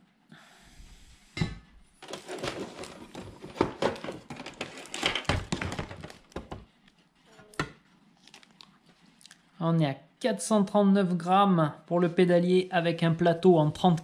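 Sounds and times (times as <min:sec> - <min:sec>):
plastic rustling: 0:02.0 - 0:07.3.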